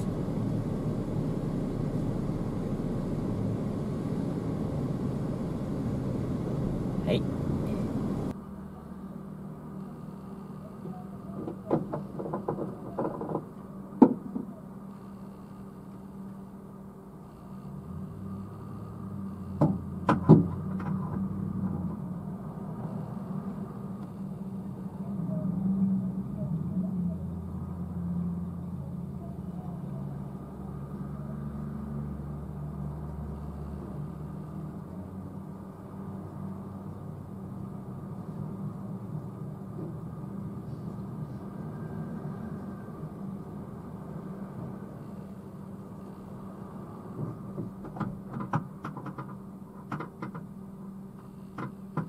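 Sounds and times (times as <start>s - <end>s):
fuel pump motor humming: 0.0s - 8.3s
fuel pump hum: 0.0s - 8.4s, 32.9s - 52.0s.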